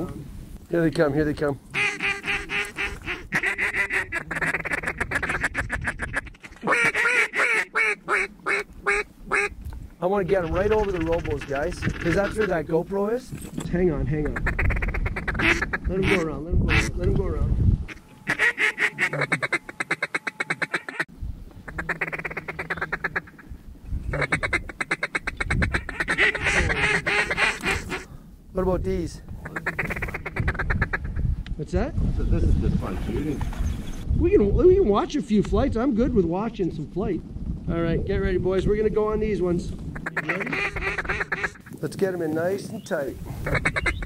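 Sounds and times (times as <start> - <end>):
duck call quacks: 1.7 - 9.5, 10.7 - 12.5, 14.3 - 16.9, 17.9 - 21.0, 21.6 - 23.4, 24.1 - 28.1, 29.4 - 31.2, 40.0 - 41.7, 43.4 - 44.0
fast chattering duck calls: 1.7 - 9.5, 10.2 - 12.7, 14.2 - 16.9, 17.9 - 21.0, 21.7 - 23.4, 24.1 - 28.1, 29.4 - 31.2, 39.9 - 41.7, 43.4 - 44.0.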